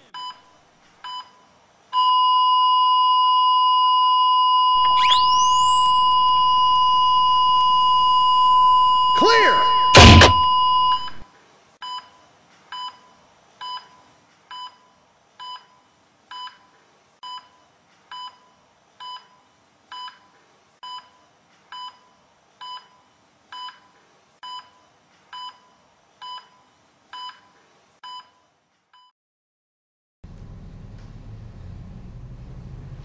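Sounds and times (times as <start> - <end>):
heart monitor beeping: 2.0 - 11.2.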